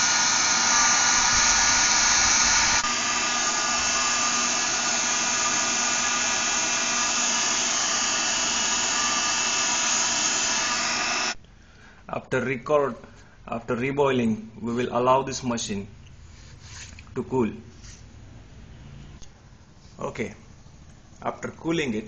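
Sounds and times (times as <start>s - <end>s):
hair dryer blowing: 0.0s - 11.4s.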